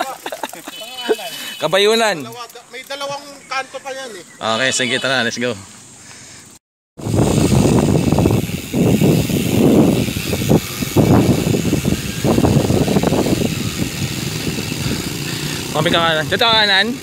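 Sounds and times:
bike tyres rolling on trail: 7.0 - 17.0
wind buffeting microphone: 7.0 - 17.0.

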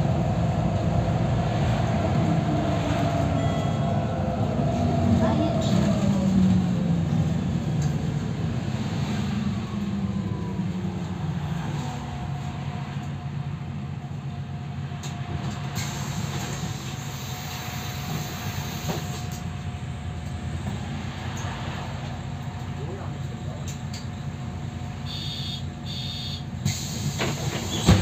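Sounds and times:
bus diesel engine drone: 0.0 - 28.0
road noise: 0.0 - 28.0.

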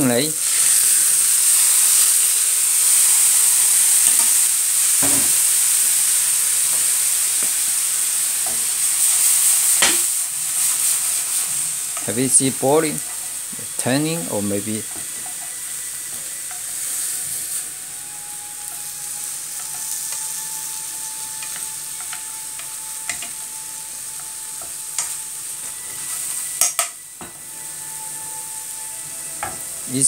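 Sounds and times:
prawns sizzling in sauce: 0.0 - 30.0
chopsticks clicking against pan: 21.4 - 23.4, 26.6 - 27.0.

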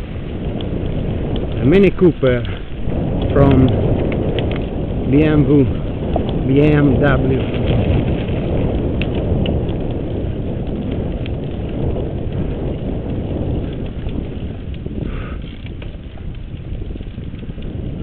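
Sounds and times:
bike frame rattling and clicking: 0.0 - 18.0
bike tyres on gravel trail: 0.0 - 18.0.

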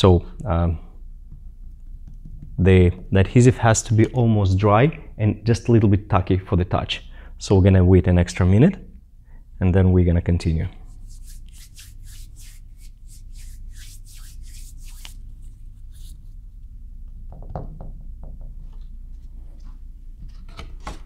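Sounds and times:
steady low hum: 0.0 - 17.3
hands rubbing and brushing: 10.8 - 16.4.

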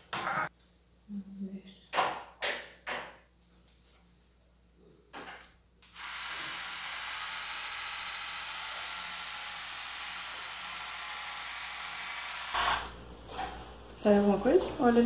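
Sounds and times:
electric hair trimmer whirring: 5.8 - 13.0.

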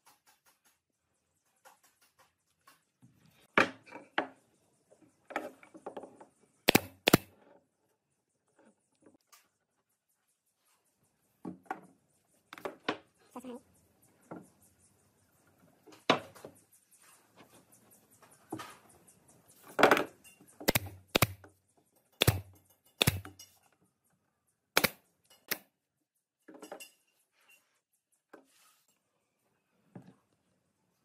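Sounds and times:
nail gun firing: 6.7 - 7.3, 20.7 - 21.5, 22.2 - 23.3, 24.8 - 25.6.

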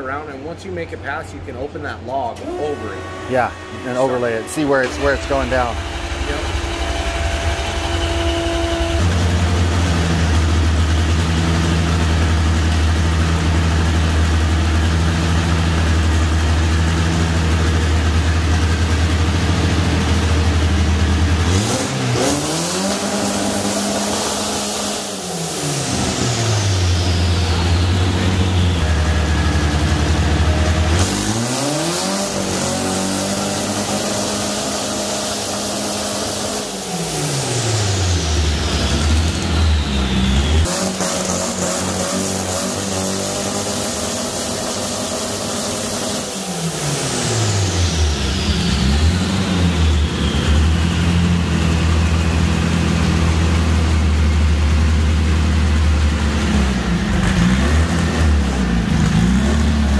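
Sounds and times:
car engine revving: 0.1 - 59.9
turbo whistle: 2.4 - 10.1, 21.7 - 29.9, 36.0 - 42.8, 46.2 - 51.6.

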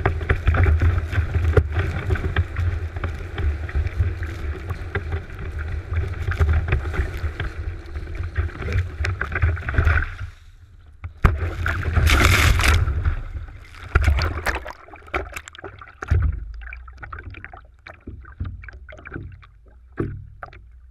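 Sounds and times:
board hitting water with splash: 11.1 - 16.8
water slapping against board: 11.1 - 20.7
water rushing and spraying: 11.4 - 16.1.

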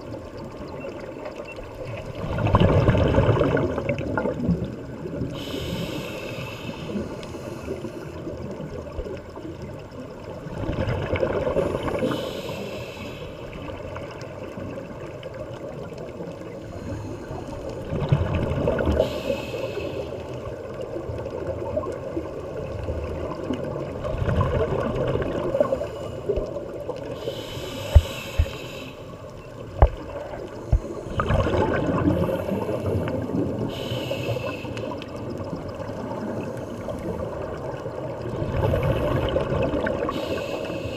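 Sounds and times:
exhaled bubbles gurgling: 0.0 - 40.9
diver breathing through regulator: 5.4 - 8.2, 11.6 - 13.6, 19.0 - 20.4, 27.1 - 29.2, 30.5 - 35.1, 40.0 - 40.9.

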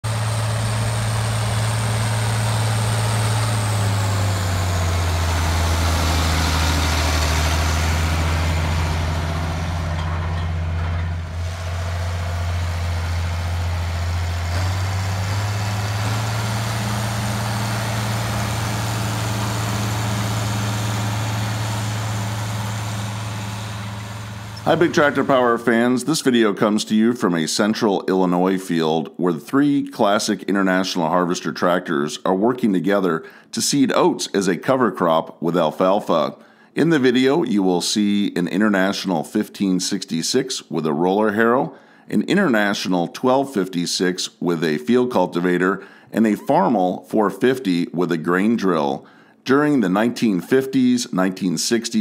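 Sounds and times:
tractor diesel engine under load: 0.0 - 26.8, 41.3 - 50.6.

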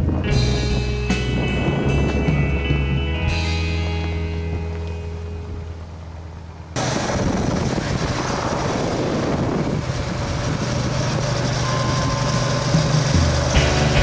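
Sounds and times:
wind rushing on microphone: 0.0 - 2.9, 6.8 - 13.5
music: 0.0 - 6.0, 12.8 - 14.0.

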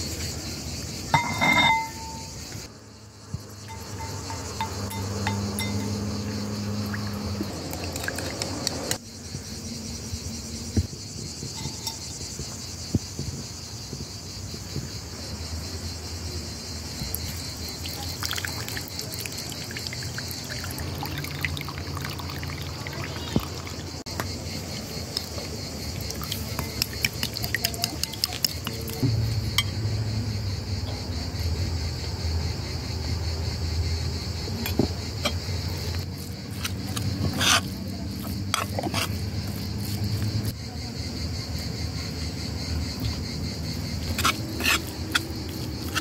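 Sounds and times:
crickets chirring: 0.0 - 46.0
liquid sloshing and dripping: 6.8 - 9.0, 17.8 - 24.0, 25.2 - 29.0
spoon stirring sauce in bowl: 26.0 - 29.0, 36.5 - 40.0
spoon scraping metal pan: 36.5 - 39.2, 44.1 - 46.0.

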